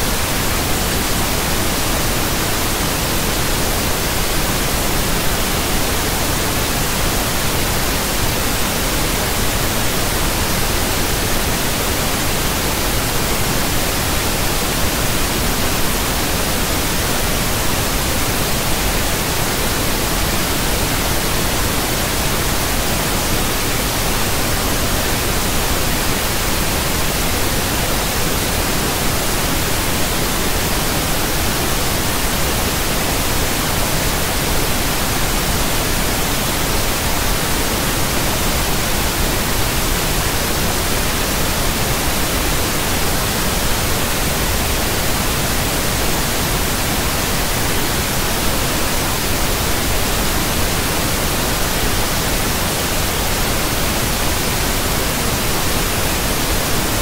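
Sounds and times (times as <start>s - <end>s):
white noise hiss: 0.0s - 57.0s.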